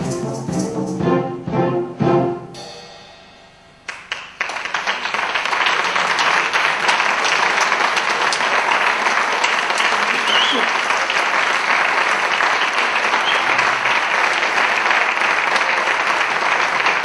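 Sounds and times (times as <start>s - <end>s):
wind band playing chords: 0.0s - 4.2s
audience applause: 3.9s - 17.0s.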